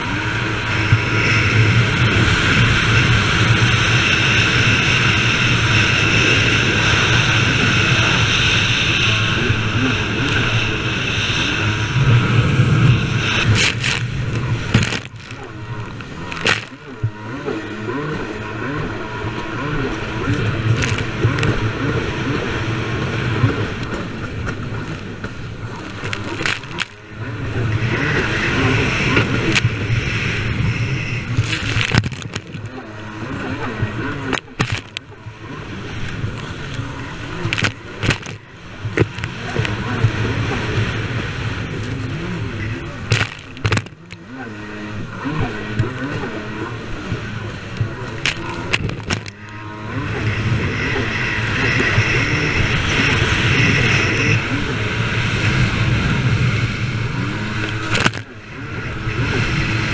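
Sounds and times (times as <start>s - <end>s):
jet ski engine running hard: 0.0s - 59.9s
wind: 0.0s - 59.9s
hull slapping on water: 23.0s - 27.1s, 31.2s - 44.5s, 45.4s - 50.2s, 55.8s - 59.9s.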